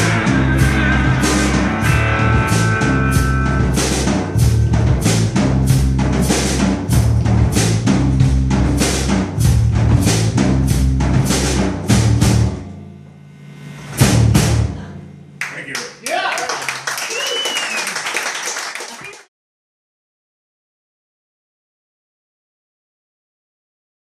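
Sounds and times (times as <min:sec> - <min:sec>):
blues-rock band playing: 0:00.0 - 0:12.6
drum and cymbal hits: 0:00.0 - 0:15.4.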